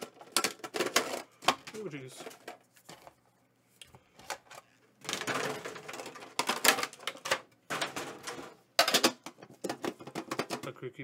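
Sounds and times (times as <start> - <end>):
metal tin clattering: 0.0 - 3.1, 5.0 - 10.7.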